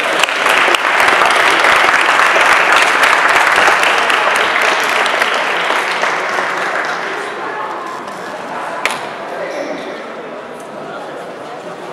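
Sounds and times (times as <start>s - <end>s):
audience applauding: 0.0s - 7.6s.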